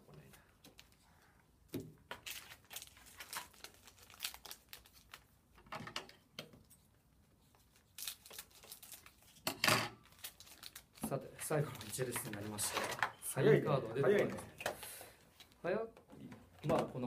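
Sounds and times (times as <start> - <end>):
wrappers crinkling and tearing: 2.2 - 5.3, 7.6 - 9.4, 10.0 - 12.9
cards being handled: 10.2 - 13.2.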